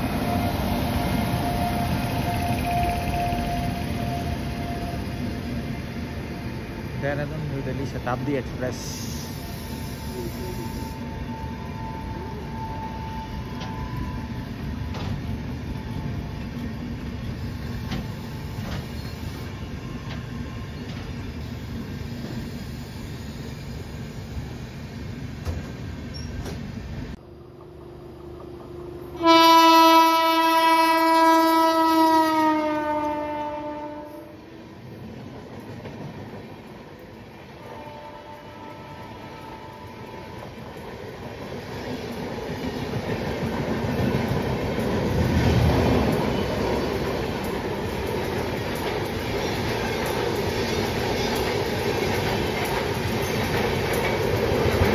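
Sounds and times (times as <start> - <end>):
train rumbling on track: 0.0 - 54.9
rail joint clicks: 6.8 - 23.9, 25.1 - 29.2, 34.8 - 54.9
locomotive horn: 29.0 - 34.6, 37.6 - 40.4.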